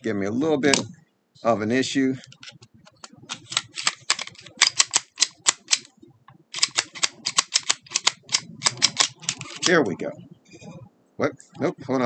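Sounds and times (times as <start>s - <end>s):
pistol slide clicking: 3.3s - 5.9s, 6.5s - 9.7s.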